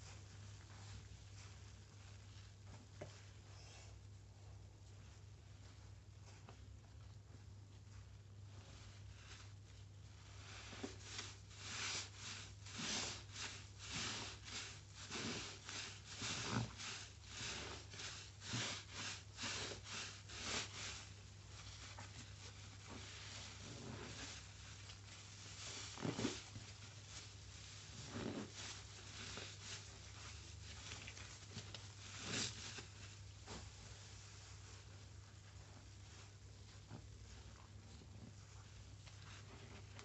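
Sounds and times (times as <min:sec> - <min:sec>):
wet sponge squelching in lather: 0:08.6 - 0:37.9.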